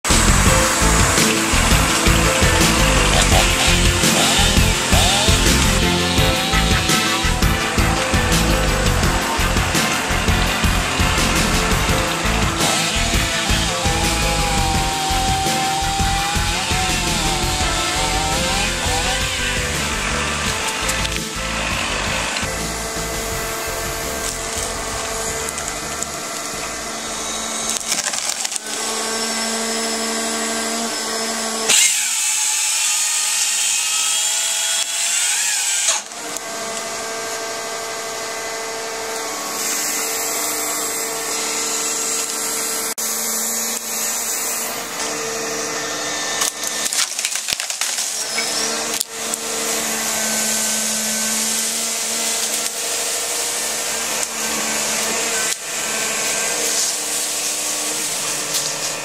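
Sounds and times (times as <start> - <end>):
sharp wood cracks: 0.0 - 29.7, 44.9 - 59.0
excavator engine and hydraulics: 0.0 - 32.2
hissing cut through tree trunk: 0.1 - 31.0, 31.7 - 36.4.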